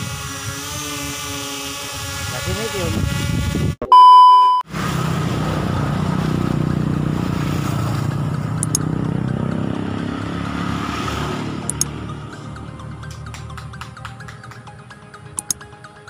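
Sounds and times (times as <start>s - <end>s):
test-tone beep with static: 3.8s - 4.6s
quick clicks: 8.6s - 8.8s, 11.7s - 11.9s, 15.4s - 15.6s.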